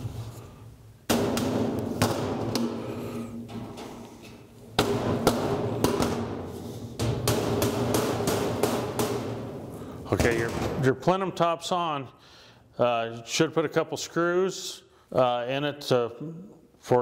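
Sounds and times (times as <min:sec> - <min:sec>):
hammer knocking sheet metal: 0:01.1 - 0:04.0, 0:04.7 - 0:11.0.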